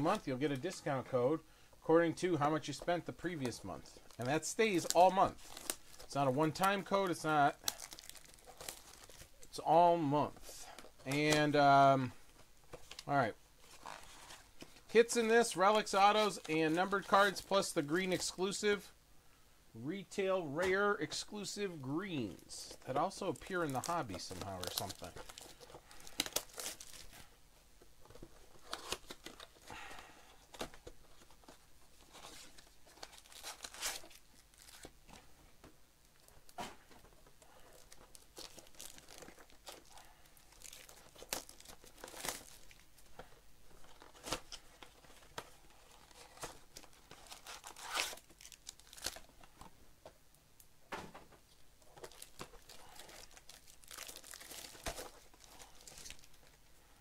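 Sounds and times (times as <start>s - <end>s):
plastic wrap tearing and crumpling: 4.1s - 6.8s, 7.6s - 9.5s, 23.4s - 27.3s, 32.0s - 34.9s, 37.7s - 42.9s, 43.8s - 49.3s, 51.9s - 56.6s.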